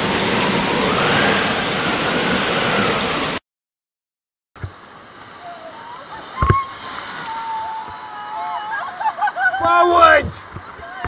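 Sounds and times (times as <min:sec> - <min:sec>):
river rapids rushing: 0:00.0 - 0:03.4.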